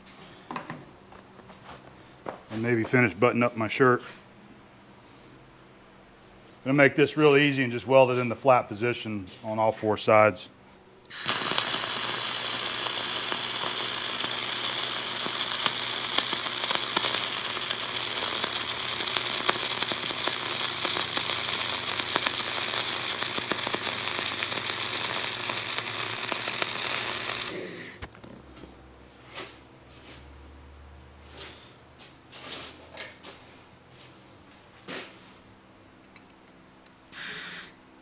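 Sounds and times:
welding arc crackling: 0:11.1 - 0:28.2, 0:37.1 - 0:37.7.

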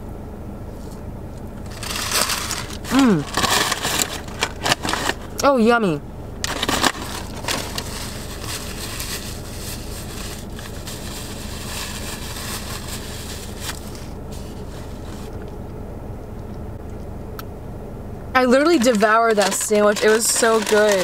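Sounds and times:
low hum in car cabin: 0:00.0 - 0:21.0
paper wrapper crumpling: 0:01.7 - 0:05.4, 0:06.4 - 0:15.1, 0:18.6 - 0:21.0.

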